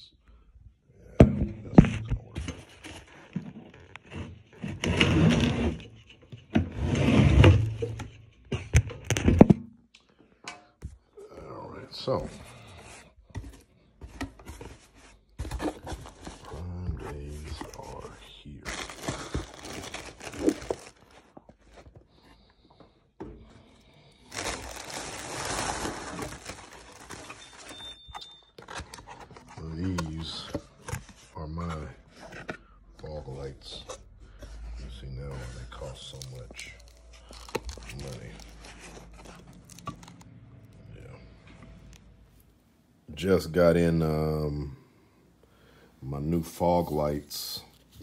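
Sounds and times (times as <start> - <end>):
packing and cardboard crinkling: 12.6 - 31.4, 35.4 - 42.6.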